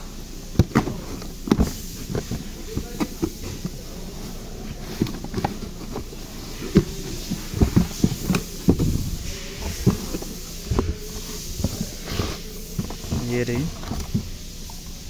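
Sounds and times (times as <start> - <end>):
faint steady hum: 0.0 - 15.0
cardboard box being opened: 0.4 - 14.4.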